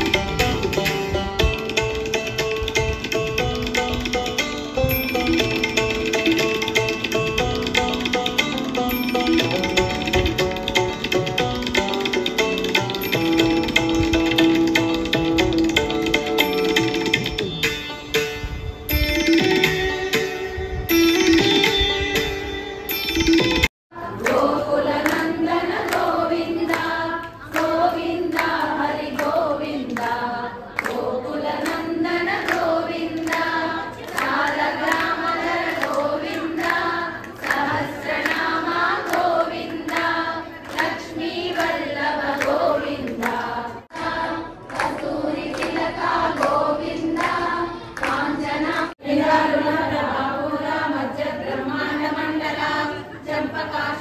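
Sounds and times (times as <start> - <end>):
rhythmic hand claps: 0.0 - 17.9, 24.1 - 48.9
women singing in unison: 23.9 - 54.0.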